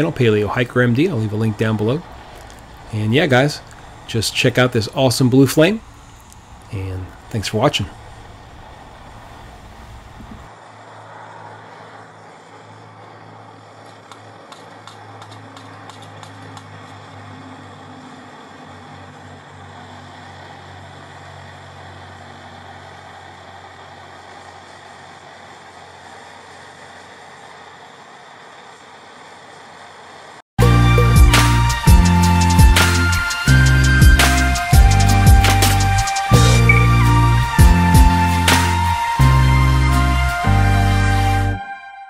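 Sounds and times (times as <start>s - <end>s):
stove burner hissing: 0.0s - 10.6s, 12.2s - 30.4s.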